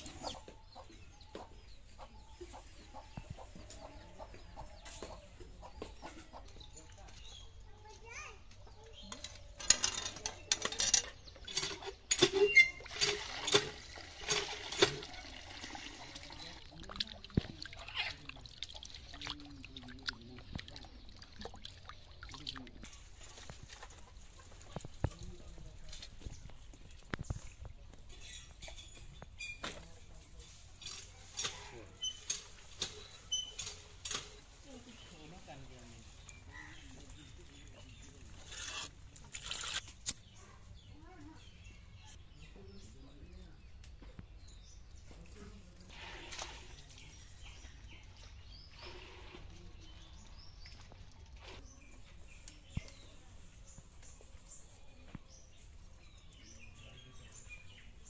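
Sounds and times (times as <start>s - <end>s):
water splashing in metal bowl: 11.5s - 22.9s.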